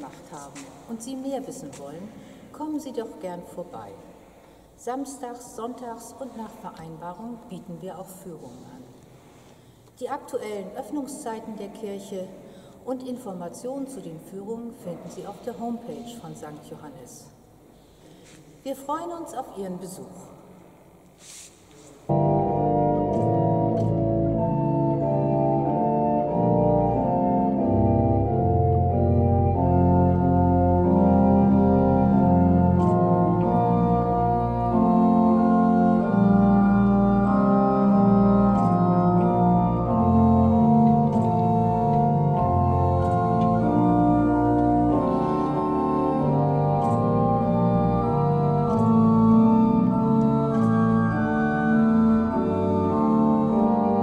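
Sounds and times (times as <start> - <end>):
pipe organ playing held chords: 22.1 - 54.0.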